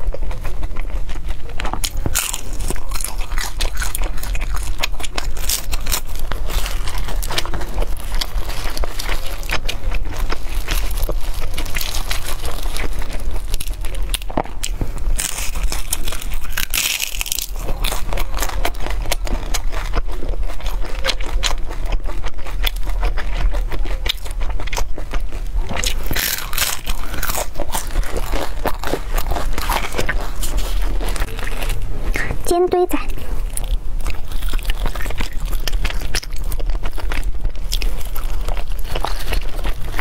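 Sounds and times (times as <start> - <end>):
crunchy chewing: 0.0 - 40.0.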